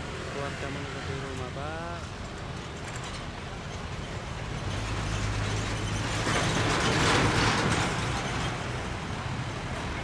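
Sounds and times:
road and mechanical rattling: 0:00.1 - 0:10.0.

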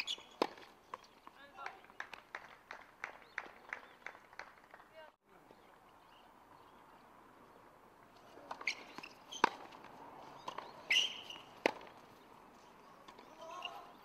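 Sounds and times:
shoe squeaks on court: 0:00.0 - 0:01.2, 0:08.6 - 0:09.7, 0:10.3 - 0:11.6
racket striking tennis ball: 0:00.0 - 0:02.1, 0:08.4 - 0:12.0
tennis ball bouncing: 0:00.0 - 0:02.8, 0:08.2 - 0:12.3, 0:13.0 - 0:13.3.

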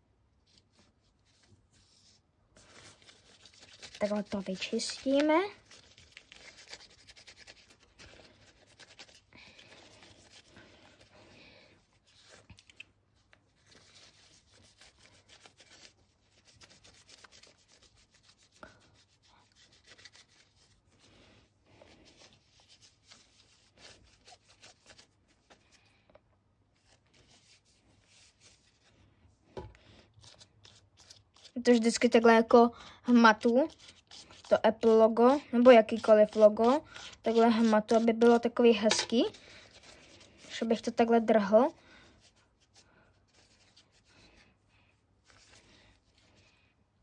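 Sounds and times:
wipe rubbing on phone: 0:00.5 - 0:11.1, 0:13.5 - 0:21.2, 0:21.8 - 0:25.7, 0:26.8 - 0:29.0, 0:42.2 - 0:44.4, 0:45.2 - 0:46.3.

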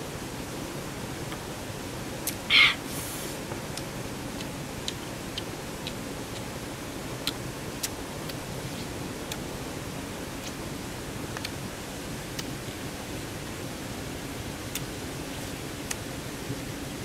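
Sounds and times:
background hiss: 0:00.0 - 0:17.0
chewing and lip-smacking: 0:10.4 - 0:10.6, 0:11.4 - 0:11.6, 0:14.7 - 0:14.9.

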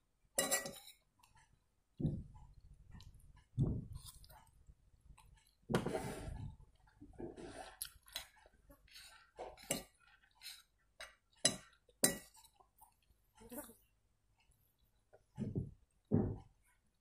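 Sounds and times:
metal spoon clinking on bowl: 0:00.4 - 0:01.0
soft eating noises: 0:00.4 - 0:17.0.

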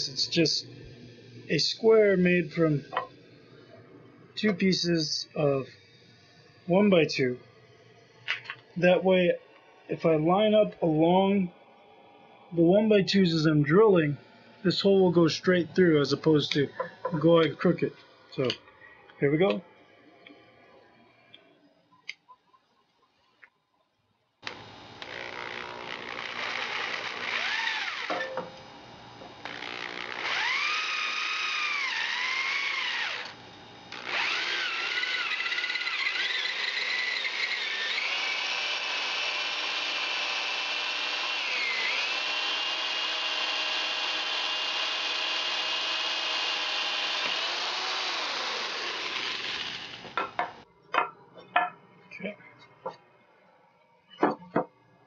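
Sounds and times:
electric drill boring through wood: 0:24.4 - 0:28.3, 0:29.4 - 0:50.2.

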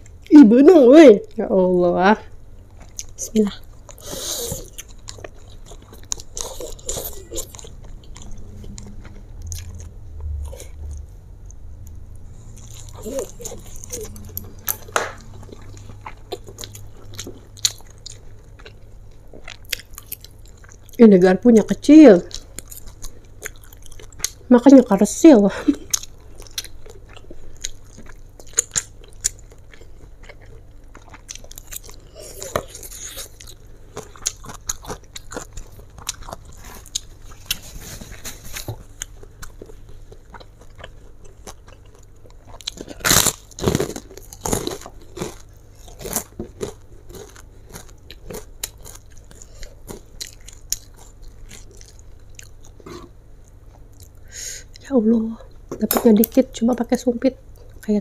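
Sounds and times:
close chewing of noodles: 0:02.6 - 0:11.1, 0:12.2 - 0:21.0, 0:22.2 - 0:24.5, 0:25.5 - 0:54.3.

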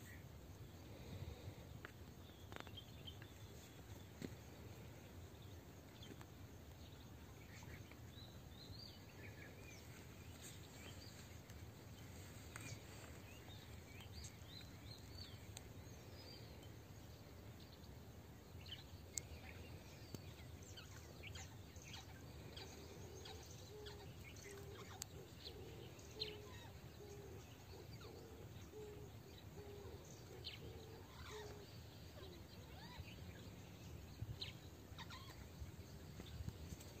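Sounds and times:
bird chirps: 0:18.6 - 0:37.0.

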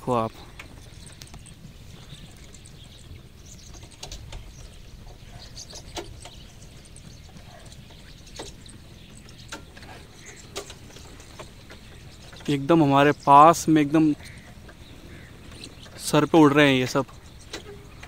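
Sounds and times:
birds of prey calling: 0:00.0 - 0:18.0
low steady rumble: 0:00.0 - 0:18.0.

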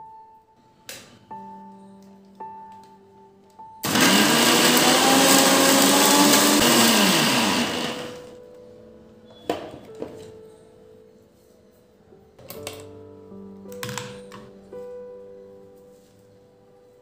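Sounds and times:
mixer grinder motor whirring: 0:03.8 - 0:08.3.

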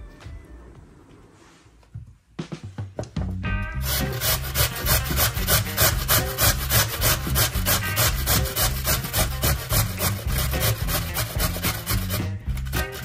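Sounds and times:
potato grating on metal grater: 0:03.8 - 0:13.0.

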